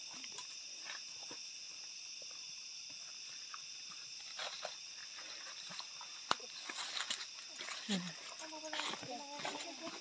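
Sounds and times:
insects droning: 0.0s - 10.0s
footsteps on dirt trail: 2.9s - 10.0s.

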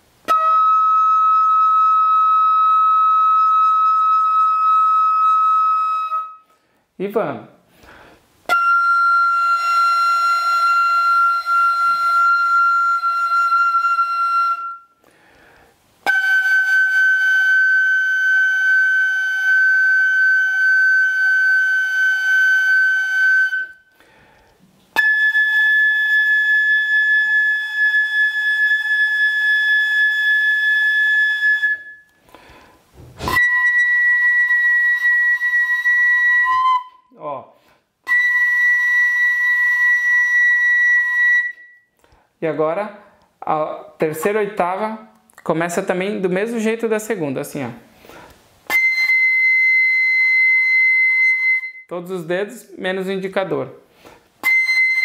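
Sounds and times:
fife playing long notes: 0.2s - 6.5s, 7.8s - 37.4s, 48.0s - 51.9s, 54.0s - 55.0s.

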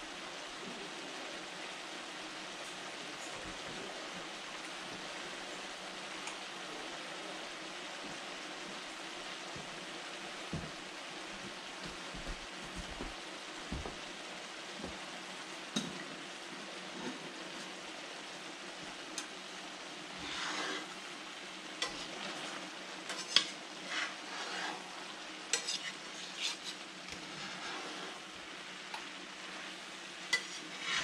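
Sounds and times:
vegetables sizzling in a skillet: 0.0s - 31.0s
metal spatula scraping a pan: 20.1s - 21.0s, 21.8s - 28.4s, 29.4s - 31.0s.

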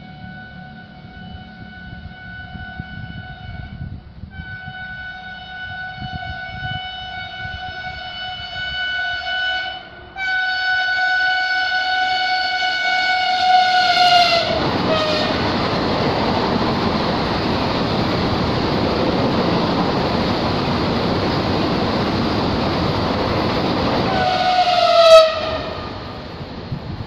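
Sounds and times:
train horn blast: 0.0s - 15.5s, 24.0s - 26.1s
rush of passing train: 0.0s - 27.0s.

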